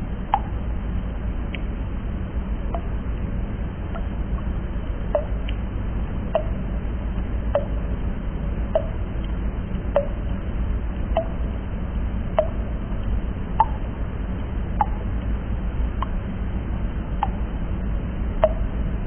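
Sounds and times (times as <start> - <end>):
steady low rumble: 0.0 - 19.0
water drops plinking into water: 0.3 - 0.6, 2.7 - 2.9, 3.9 - 4.5, 5.1 - 5.6, 6.3 - 6.6, 7.5 - 7.8, 8.7 - 10.4, 11.1 - 11.5, 12.3 - 12.7, 13.6 - 13.9, 14.8 - 15.3, 17.2 - 17.4, 18.4 - 18.8.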